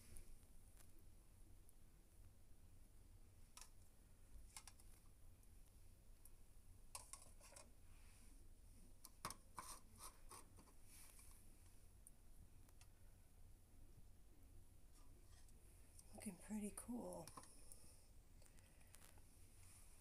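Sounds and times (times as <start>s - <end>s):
light clicks and scrapes of handling: 3.5s - 13.0s, 14.9s - 20.0s.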